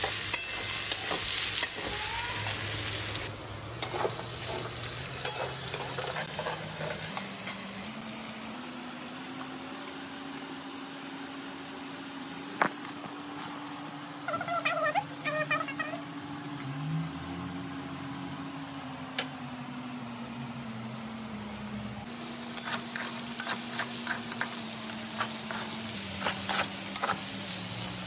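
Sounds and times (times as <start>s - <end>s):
potatoes sizzling in hot oil: 0.0s - 12.6s, 22.0s - 28.0s
metal spatula scraping a pan: 3.8s - 7.6s, 22.6s - 24.6s, 25.2s - 27.4s.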